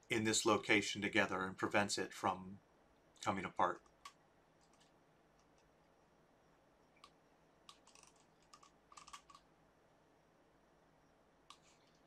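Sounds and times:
faint computer clicks: 7.0 - 9.5.

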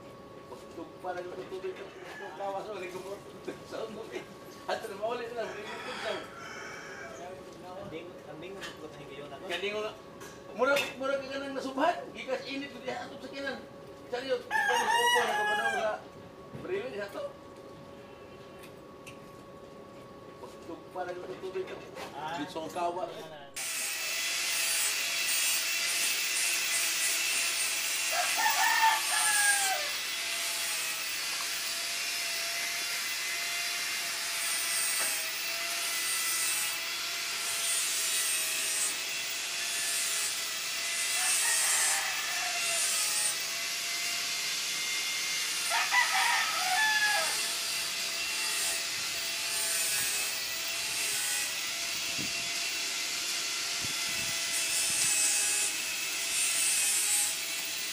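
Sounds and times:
rooster crowing: 1.8 - 2.6, 5.2 - 7.4, 14.5 - 16.0, 28.0 - 30.1, 41.1 - 43.4, 45.6 - 47.6.

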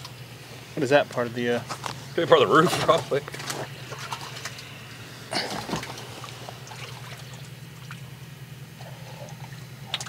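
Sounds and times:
steady low hum: 0.0 - 10.0
water splashing and trickling: 2.6 - 4.8, 5.4 - 8.2, 8.8 - 10.0.

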